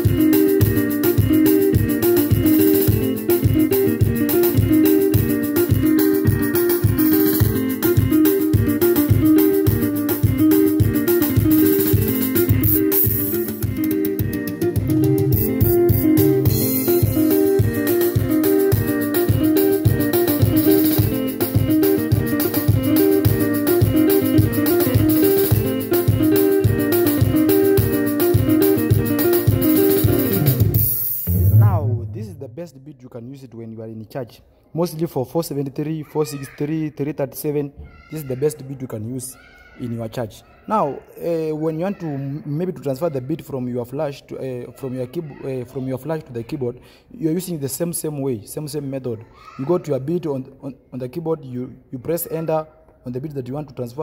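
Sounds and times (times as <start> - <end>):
picked guitar lines: 0.0 - 32.0
bass: 0.0 - 32.4
drum kit: 0.0 - 32.4.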